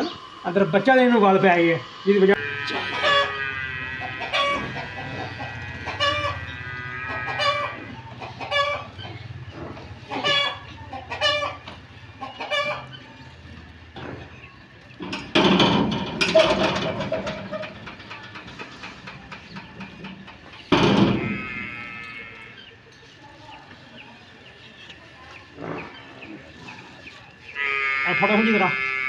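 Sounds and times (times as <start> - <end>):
loud rough noise: 0.0 - 10.7
chickens clucking: 0.0 - 29.0.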